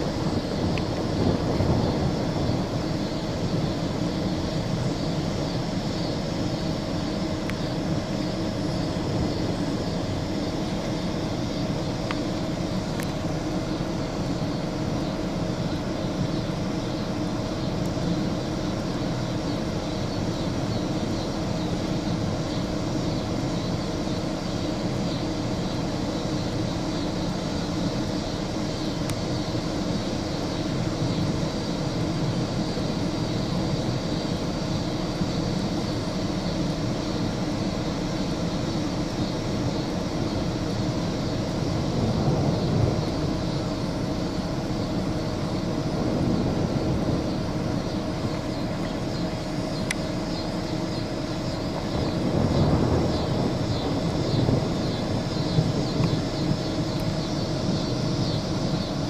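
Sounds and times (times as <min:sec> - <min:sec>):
mid-pitched hum: 0:00.0 - 0:59.0
steady rushing noise: 0:00.0 - 0:59.0
faint ticks: 0:12.0 - 0:12.2, 0:49.8 - 0:50.1.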